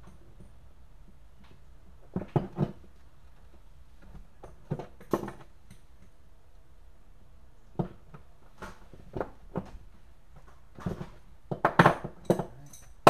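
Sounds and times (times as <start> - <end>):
wrenches clinking on metal fittings: 11.8 - 13.0.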